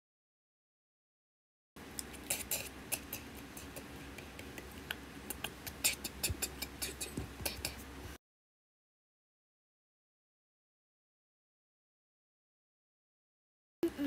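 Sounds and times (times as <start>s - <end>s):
low steady hum: 1.8s - 8.2s.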